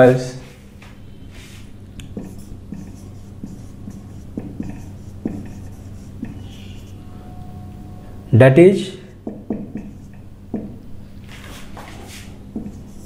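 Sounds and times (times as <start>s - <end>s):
faint low hum: 0.0s - 13.0s
marker pen writing on whiteboard: 2.0s - 7.1s, 9.1s - 13.0s.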